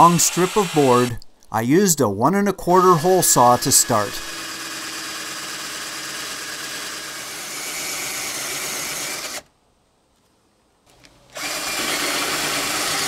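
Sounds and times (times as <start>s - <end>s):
drill cutting through wood: 0.0s - 1.2s, 2.6s - 9.5s, 11.3s - 13.0s.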